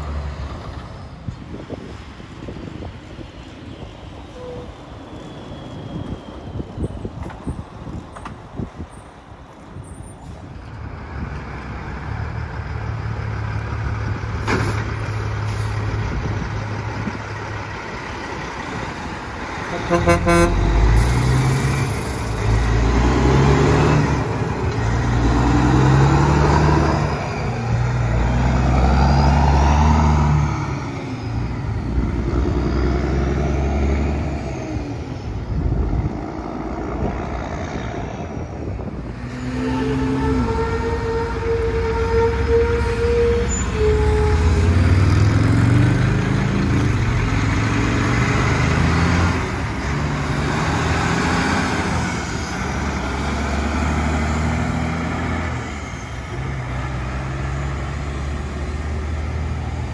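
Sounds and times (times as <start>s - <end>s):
diesel trucks accelerating: 0.0s - 59.9s
truck horn toot: 19.6s - 21.2s, 39.3s - 45.1s.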